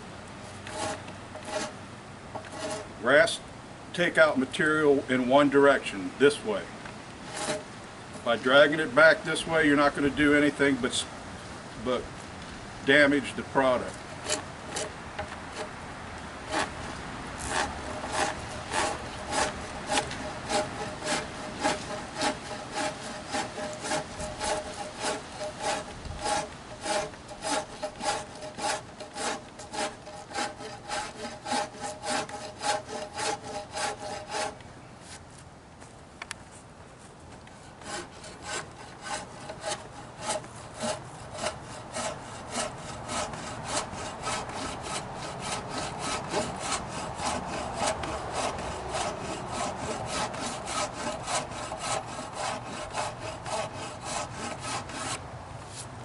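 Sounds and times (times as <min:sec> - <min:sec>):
wood rasp filing: 0:00.6 - 0:01.7, 0:02.4 - 0:02.9, 0:07.3 - 0:07.6, 0:14.2 - 0:14.9, 0:16.5 - 0:16.8, 0:17.4 - 0:34.6, 0:37.6 - 0:55.2.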